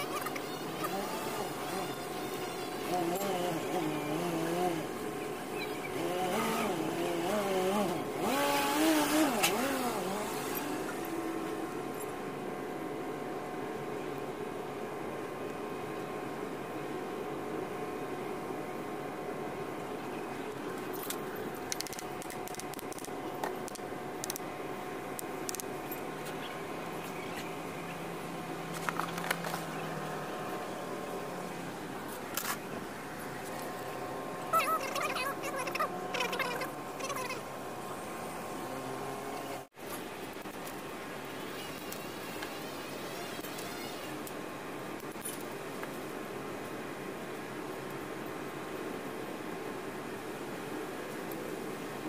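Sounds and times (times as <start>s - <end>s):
engine revving: 0.0s - 11.7s
low machine hum: 0.0s - 52.0s.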